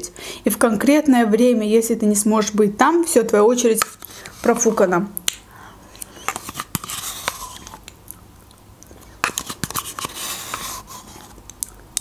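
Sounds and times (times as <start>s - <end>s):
wet mouth noises and lip smacks: 11.4s - 12.0s.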